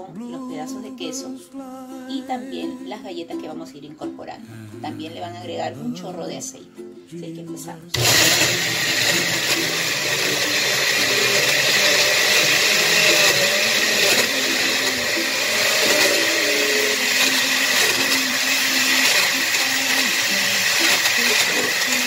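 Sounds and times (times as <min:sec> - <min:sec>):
blender running: 0:07.9 - 0:22.0.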